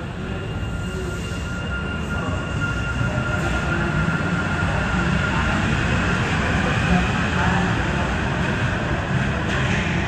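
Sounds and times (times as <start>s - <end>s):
metro train running in tunnel: 0.0s - 10.0s.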